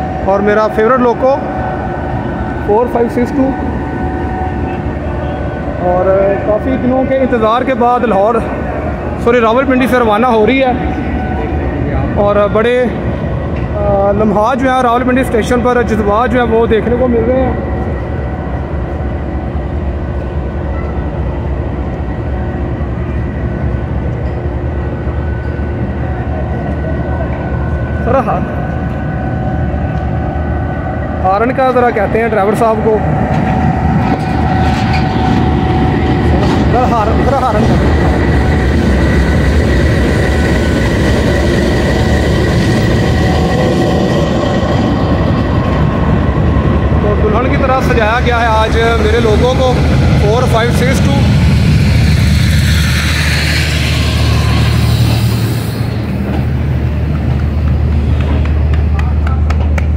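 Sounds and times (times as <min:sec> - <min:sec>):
locomotive engine rumbling: 0:00.0 - 0:59.9
thin high whine: 0:25.2 - 0:58.6
locomotive diesel engine rumble: 0:31.9 - 0:59.9.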